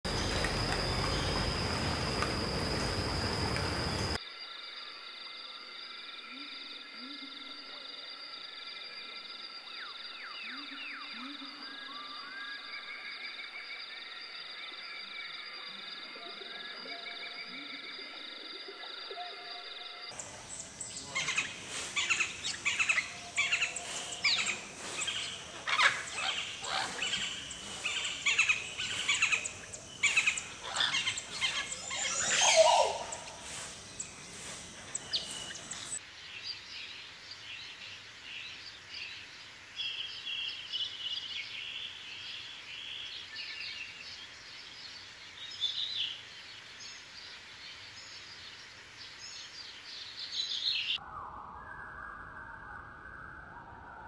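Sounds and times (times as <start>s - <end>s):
birds chirping chorus: 0.0s - 4.2s, 20.1s - 39.2s.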